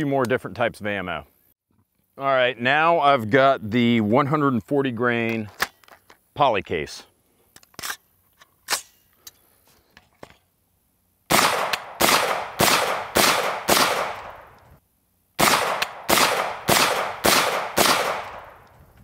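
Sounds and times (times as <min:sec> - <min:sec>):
rifle shots: 0:11.3 - 0:14.6, 0:15.4 - 0:18.6.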